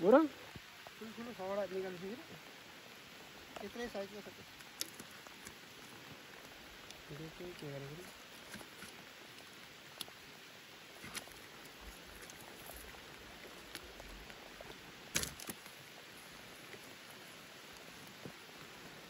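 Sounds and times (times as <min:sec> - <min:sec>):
rain on water and boat: 0:00.0 - 0:19.0
clicks and knocks handling net: 0:15.1 - 0:15.7.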